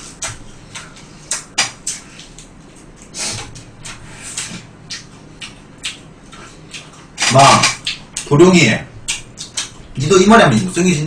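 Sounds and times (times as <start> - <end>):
fried chicken being bitten: 0.0 - 8.4, 9.0 - 9.9
chopsticks clicking against dishes: 0.2 - 3.1, 4.4 - 8.4, 9.1 - 9.8.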